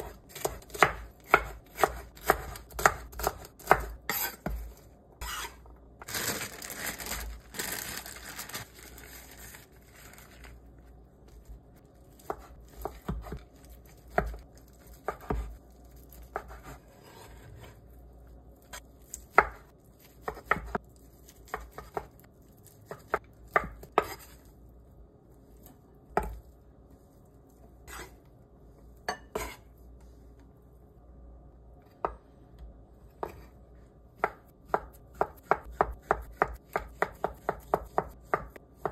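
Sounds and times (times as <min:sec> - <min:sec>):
knife scraping on cutting board: 0:03.6 - 0:05.7, 0:16.3 - 0:17.8, 0:24.0 - 0:24.4, 0:27.8 - 0:28.2, 0:29.1 - 0:29.7.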